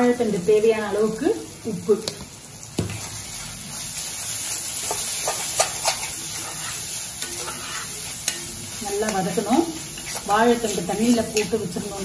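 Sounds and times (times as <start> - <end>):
food sizzling in a pan: 0.0 - 12.0
metal spatula scraping a pan: 3.0 - 12.0.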